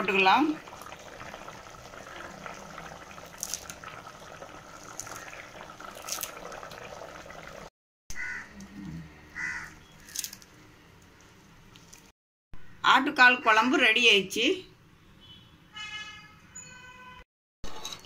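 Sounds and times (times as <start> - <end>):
curry bubbling in a pot: 0.0 - 7.7
caw-like calls: 8.1 - 8.6, 9.3 - 10.2.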